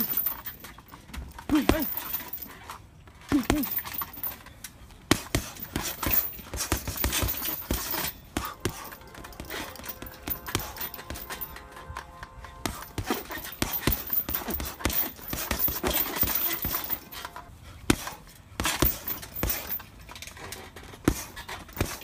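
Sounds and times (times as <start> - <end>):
gloved punches on a heavy bag: 1.4 - 2.5, 3.3 - 4.3, 5.1 - 11.6, 12.6 - 17.2, 17.8 - 19.8, 20.9 - 22.0.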